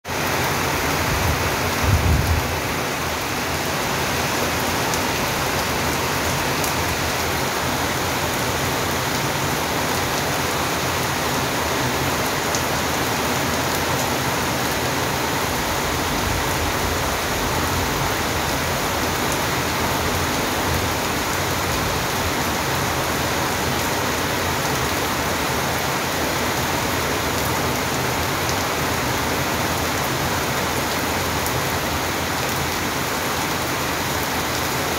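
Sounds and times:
steady rain falling: 0.1 - 34.9.

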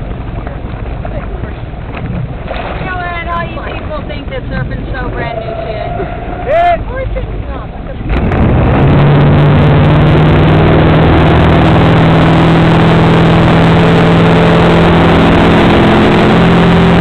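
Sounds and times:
motorboat engine running: 0.0 - 17.0
water rushing in boat wake: 0.0 - 17.0.

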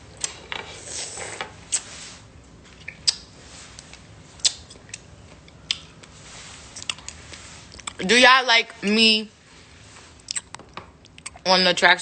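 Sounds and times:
soft rustle: 0.8 - 4.4, 5.9 - 10.3.

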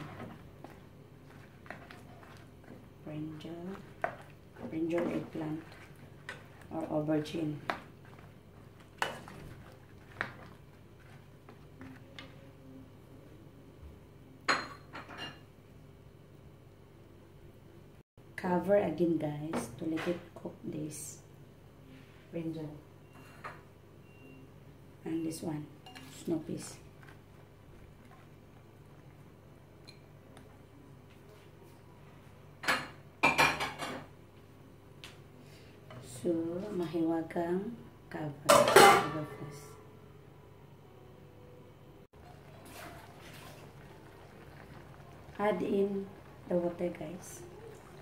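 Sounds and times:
kitchenware clinking and clattering: 14.5 - 15.4, 32.6 - 34.1, 38.5 - 39.4
cookware clattering against pan: 38.5 - 39.2.

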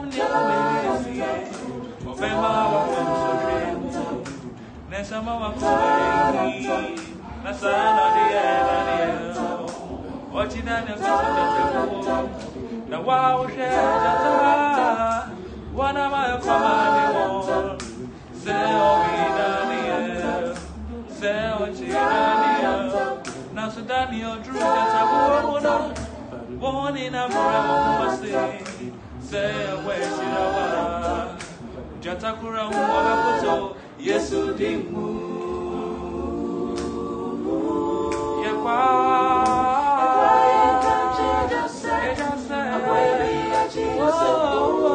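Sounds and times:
group singing a cappella: 0.0 - 44.9.

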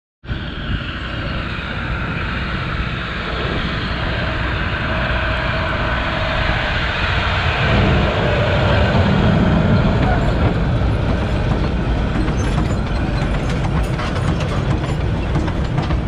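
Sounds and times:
diesel locomotive engine droning: 0.2 - 16.0.

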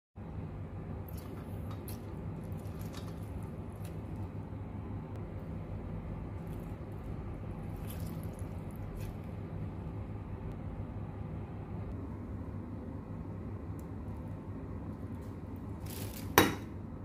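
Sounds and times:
steady low hum: 0.2 - 17.0
lemon squishing and dripping: 1.0 - 4.3, 6.3 - 9.5.

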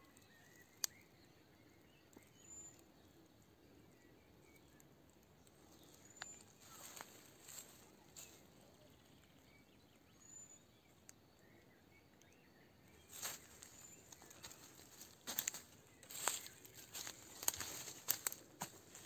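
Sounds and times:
faint high bird chirps: 0.0 - 19.0
footsteps crunching dry leaves: 6.6 - 8.4, 13.1 - 19.0.

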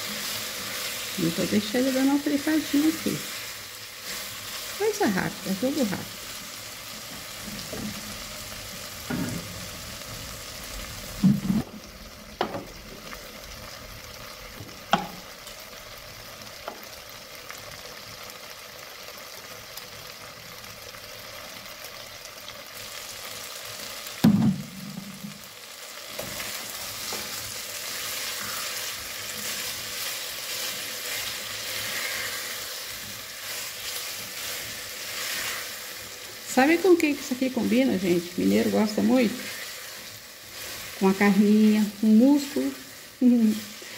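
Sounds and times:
taro sizzling in oil: 0.0 - 43.9
spatula knocking pot: 14.9 - 15.2.

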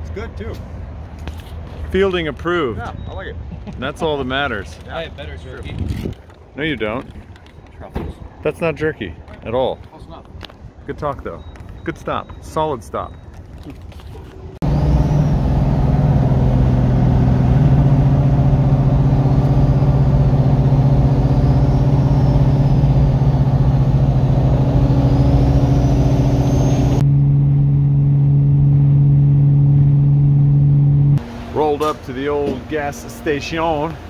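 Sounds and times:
car engine droning: 14.6 - 34.0.

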